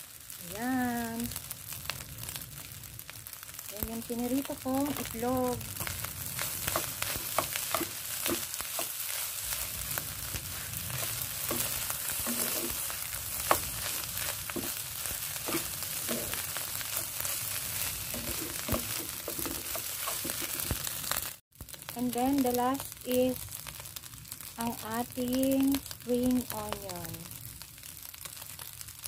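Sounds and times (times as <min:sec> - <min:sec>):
food sizzling in a pan: 0:00.0 - 0:29.0
utensil scraping a pan: 0:05.7 - 0:20.8.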